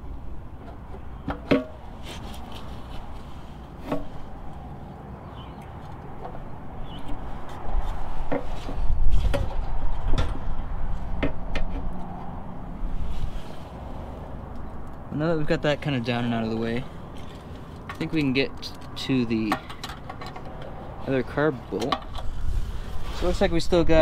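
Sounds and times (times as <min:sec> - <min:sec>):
clicks and knocks on engine linkage: 0:17.8 - 0:20.7.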